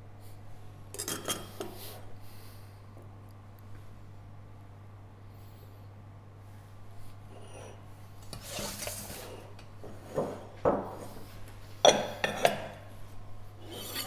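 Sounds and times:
brushing scrape on table: 7.3s - 11.3s, 13.6s - 14.0s
dishes knocking and clinking: 9.8s - 11.2s, 11.8s - 12.8s.

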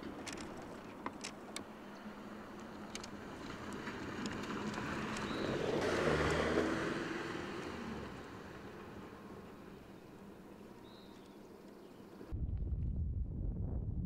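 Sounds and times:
suv driving past on dirt: 3.2s - 11.2s.

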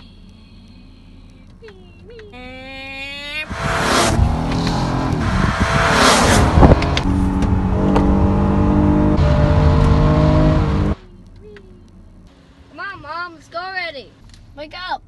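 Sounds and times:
high-revving race car engine: 3.3s - 11.0s
race car rushing past: 3.4s - 11.0s.

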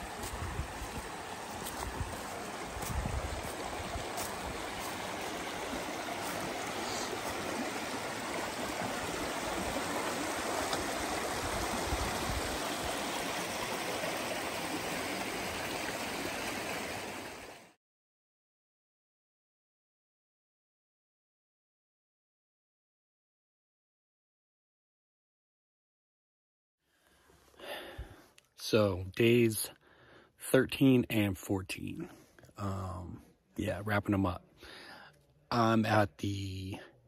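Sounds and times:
creek water rushing: 0.0s - 17.8s.

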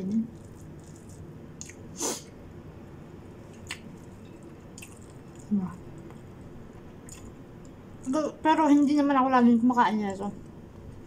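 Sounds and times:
wet mouth clicks and smacks: 1.6s - 1.8s.

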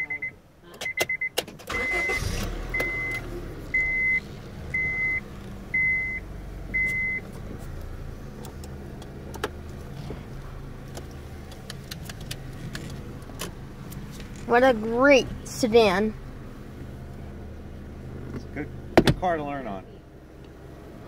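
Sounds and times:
dashboard warning chime: 0.0s - 7.3s
car engine idling: 0.0s - 21.0s.

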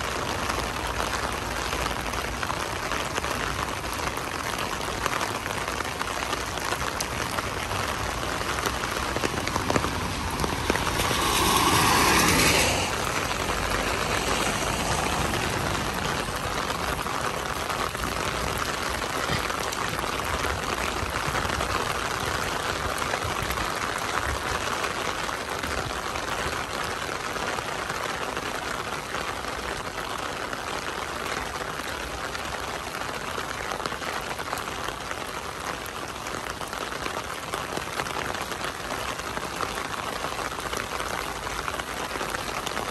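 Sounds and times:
steady rain falling: 0.0s - 42.9s
low rumble: 8.1s - 18.3s.

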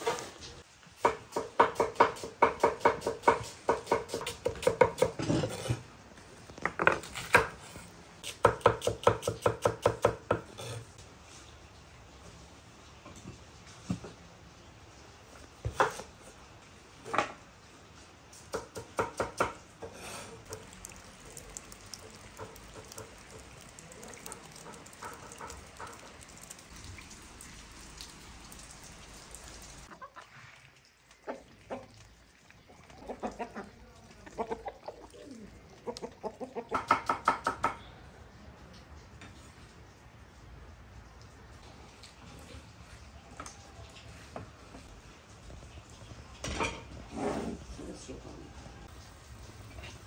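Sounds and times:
chickens clucking: 29.9s - 37.1s.

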